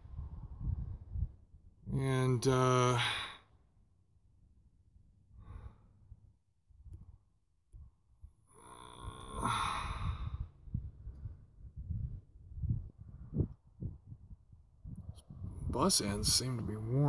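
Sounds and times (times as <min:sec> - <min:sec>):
man breathing and sighing: 0:02.8 - 0:03.7, 0:05.3 - 0:06.4, 0:08.6 - 0:11.8.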